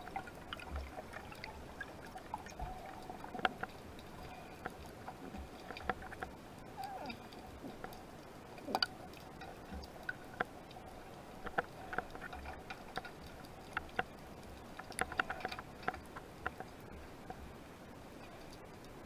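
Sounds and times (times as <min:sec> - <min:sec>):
faint steady hiss: 0:00.0 - 0:19.0
underwater clicks and ticks: 0:00.0 - 0:19.0.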